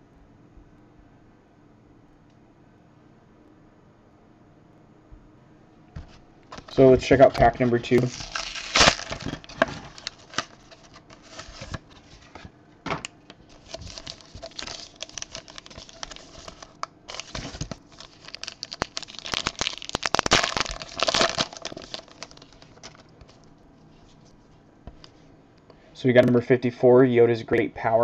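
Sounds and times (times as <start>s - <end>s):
cardboard packaging crinkling and tearing: 6.5s - 12.5s, 13.4s - 23.4s.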